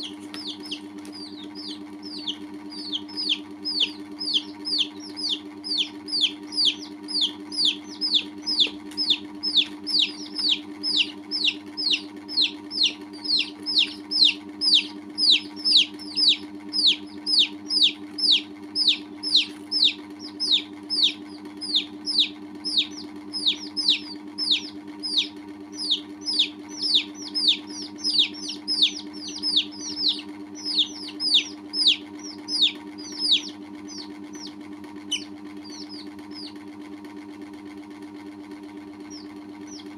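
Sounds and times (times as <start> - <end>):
chicks peeping: 0.0 - 37.0, 38.9 - 39.9
steady low hum: 0.0 - 39.9.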